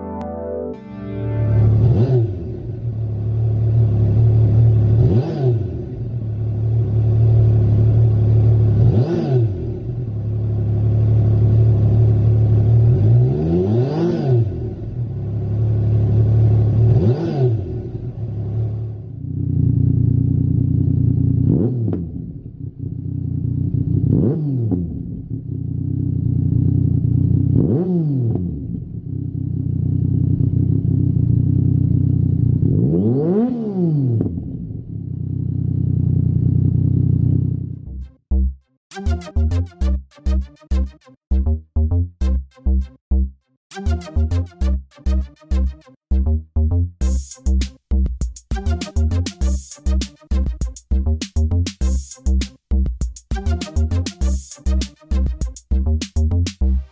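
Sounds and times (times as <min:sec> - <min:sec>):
motorcycle engine idling and revving: 0:01.7 - 0:38.6.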